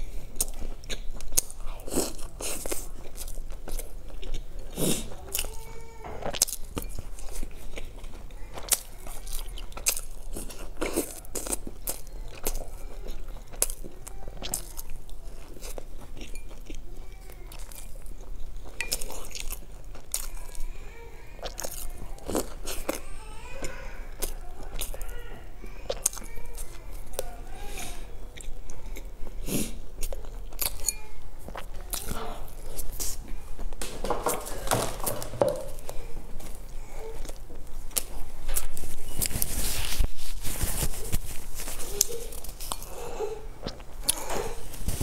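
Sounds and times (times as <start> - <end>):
crunchy toast chewing: 21.4 - 23.0, 25.9 - 27.3, 28.4 - 45.0.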